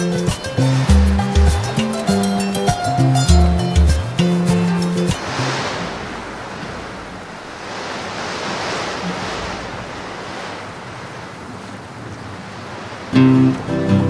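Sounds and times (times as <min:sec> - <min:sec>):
strummed acoustic guitar music: 0:00.0 - 0:05.6, 0:13.1 - 0:14.0
sea waves breaking and rushing: 0:00.0 - 0:14.0
wind over deck: 0:04.6 - 0:13.7.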